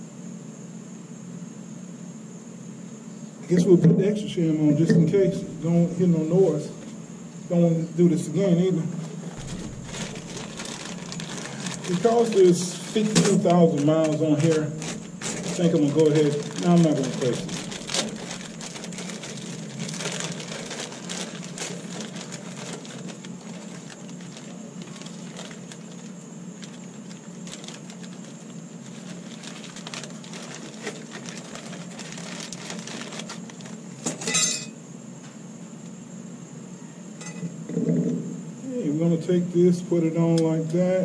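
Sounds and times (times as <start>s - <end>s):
plastic packaging crinkling: 9.2s - 34.7s
loud rattle: 9.3s - 23.9s.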